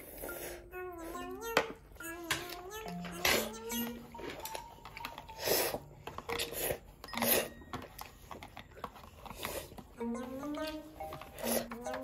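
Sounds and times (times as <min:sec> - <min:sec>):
child slurping broth: 0:05.3 - 0:07.6.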